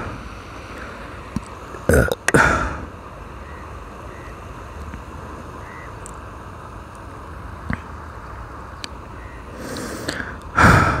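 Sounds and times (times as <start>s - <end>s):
steady outdoor rushing noise: 0.0s - 11.0s
faint bird chirps: 3.4s - 4.8s, 5.6s - 6.0s, 9.1s - 9.5s.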